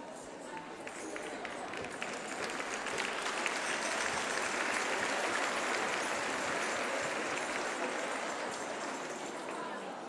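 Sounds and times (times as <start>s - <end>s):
audience applauding: 1.4s - 9.4s.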